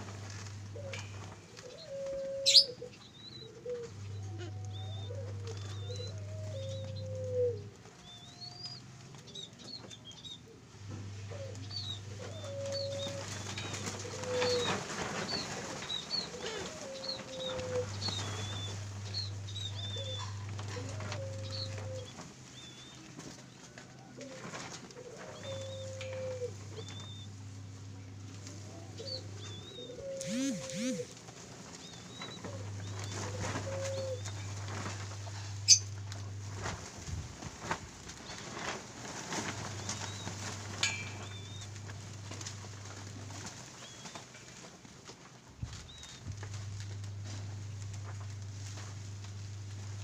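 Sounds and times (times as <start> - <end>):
doves cooing: 0.0 - 50.0
small birds chirping: 2.4 - 7.0, 11.4 - 23.0
low hum: 10.7 - 23.2, 25.1 - 44.7, 45.6 - 50.0.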